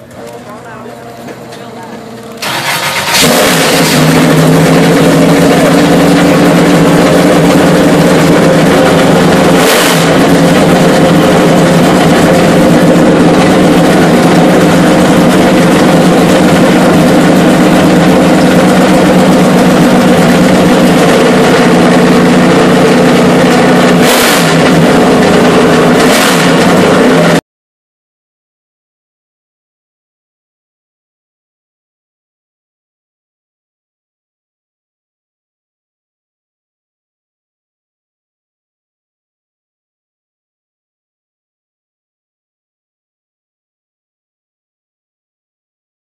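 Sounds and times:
race car engine idling: 0.0 - 27.4.

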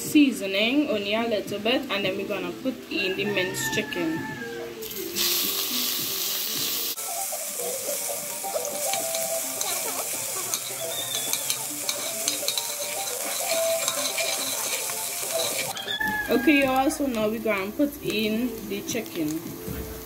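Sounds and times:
seasoning sizzling in hot oil: 4.8 - 20.0
spoon clicking against pot: 10.5 - 14.6.

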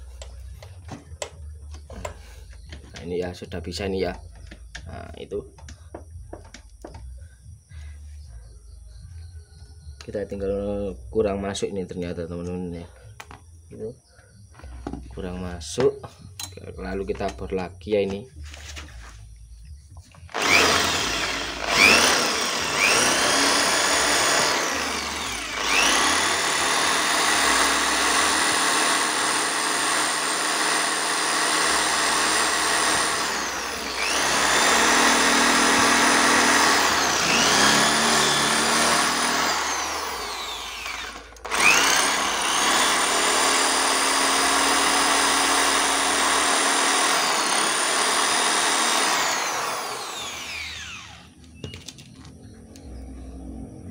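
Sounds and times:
electric drill boring into metal: 20.3 - 51.4.

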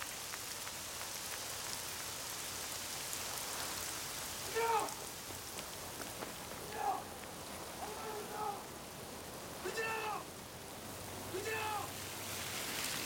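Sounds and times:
raindrops ticking: 0.0 - 13.0
steady rain falling: 0.0 - 13.0
short voice-like cry: 4.5 - 5.0, 6.7 - 7.1, 7.8 - 8.7, 9.6 - 10.3, 11.3 - 11.9.

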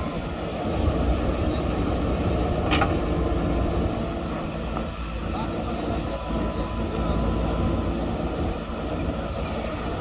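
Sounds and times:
diesel engine running under load: 0.0 - 10.0.

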